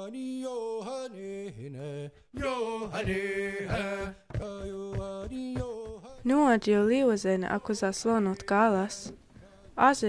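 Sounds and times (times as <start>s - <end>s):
steady drum beat: 3.0s - 6.4s.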